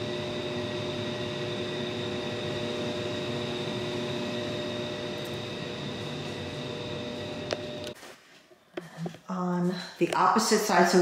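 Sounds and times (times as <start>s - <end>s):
fan humming: 0.0s - 8.1s.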